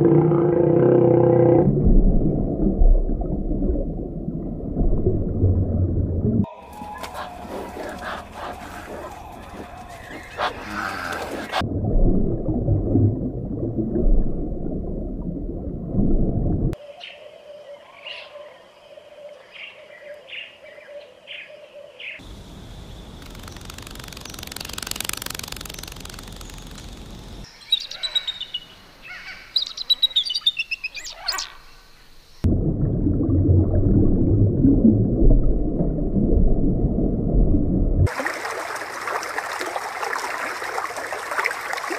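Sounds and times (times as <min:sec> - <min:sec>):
birds chirping: 0:06.6 - 0:11.6, 0:17.0 - 0:32.4
bird trills: 0:25.6 - 0:31.8
loud low noise: 0:32.4 - 0:38.0.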